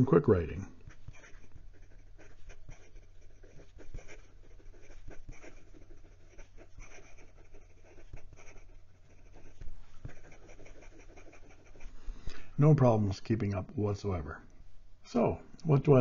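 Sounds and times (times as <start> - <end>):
pen nib scratching on paper: 0.0 - 12.0.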